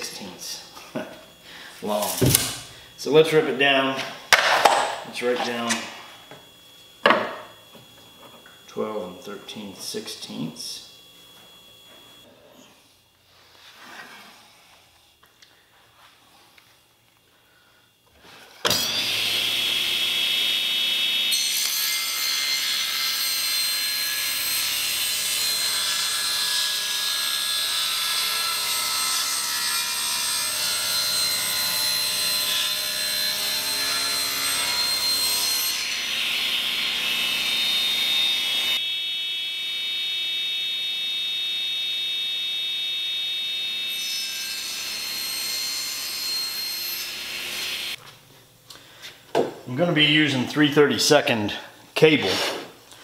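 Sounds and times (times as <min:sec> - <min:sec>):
table saw ripping wood: 0:18.6 - 0:38.8.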